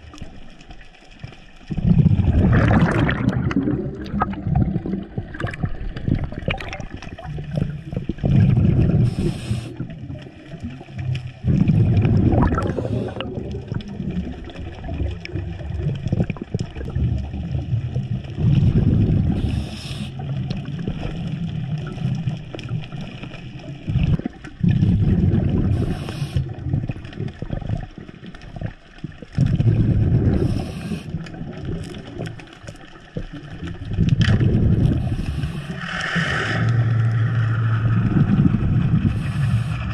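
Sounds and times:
bubbles rumbling and gurgling: 0.0 - 39.9
diver breathing through regulator: 8.5 - 10.0, 11.5 - 13.4, 19.1 - 20.4, 24.7 - 26.7, 29.6 - 31.4, 34.6 - 39.9.

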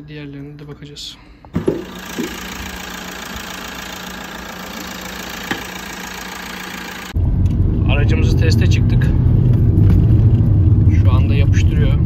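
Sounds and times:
sharp knocks: 1.6 - 2.4
diesel engine idling: 1.6 - 7.2.

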